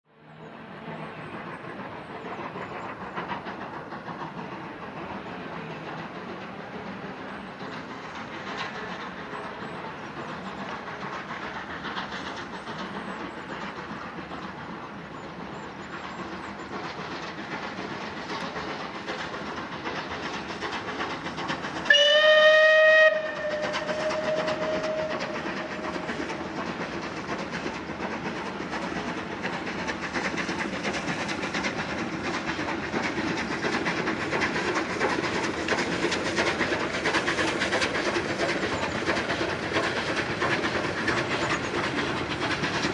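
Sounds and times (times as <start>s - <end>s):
steam locomotive running: 0.2s - 42.9s
steam train whistle blast: 21.9s - 25.6s.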